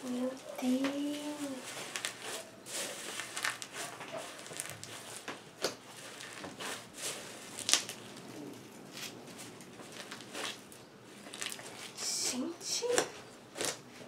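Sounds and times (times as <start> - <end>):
styrofoam beads crunching in slime: 1.0 - 8.2, 9.8 - 12.0.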